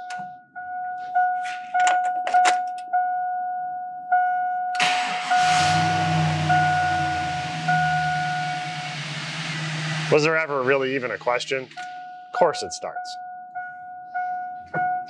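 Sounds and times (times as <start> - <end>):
car engine cranking and idling: 4.8 - 12.0
warning chime dinging: 5.3 - 13.8.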